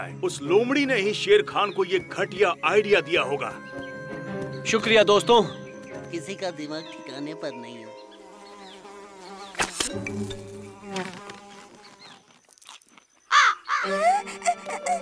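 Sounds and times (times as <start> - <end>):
background music: 0.0 - 11.3, 13.7 - 15.0
cartoon fly buzzing: 8.1 - 15.0
sharp click: 9.5 - 10.0.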